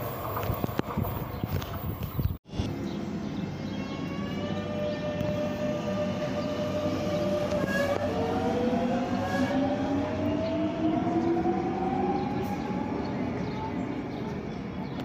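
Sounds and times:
wheels rumbling on rail: 0.0s - 15.0s.

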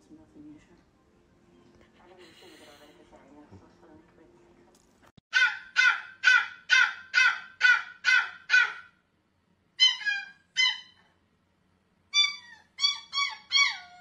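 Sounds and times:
puppy barking: 5.3s - 9.0s, 9.8s - 11.1s, 12.2s - 14.0s.

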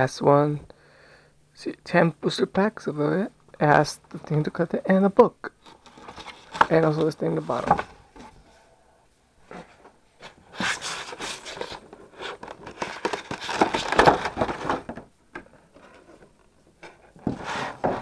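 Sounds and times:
plastic tray crackling and scraping: 5.6s - 8.4s, 10.3s - 15.0s.

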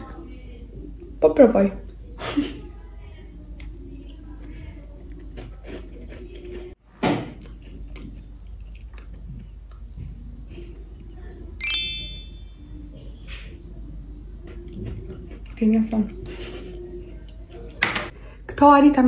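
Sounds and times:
person chewing a biscuit: 7.4s - 10.0s, 14.4s - 15.6s
bell-like ding: 11.6s - 12.6s.

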